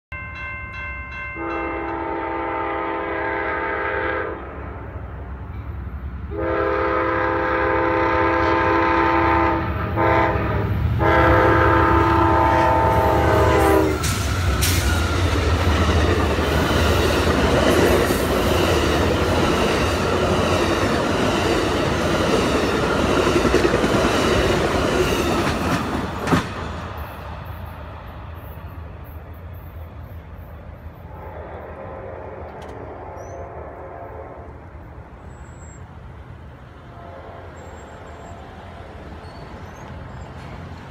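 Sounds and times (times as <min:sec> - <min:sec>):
train horn blasts: 0:01.3 - 0:05.0, 0:06.3 - 0:14.1, 0:30.9 - 0:34.9, 0:36.8 - 0:38.9
train wheels clacking over rails: 0:12.8 - 0:28.6.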